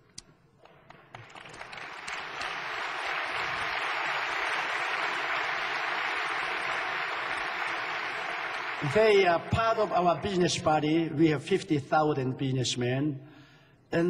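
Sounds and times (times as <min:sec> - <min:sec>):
audience applauding: 0:00.6 - 0:10.2.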